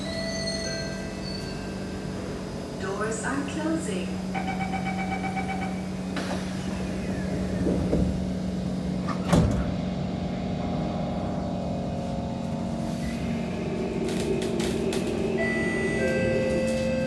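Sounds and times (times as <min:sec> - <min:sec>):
train doors shutting: 0:00.0 - 0:10.1, 0:12.4 - 0:17.0
door warning beeps: 0:04.3 - 0:05.9.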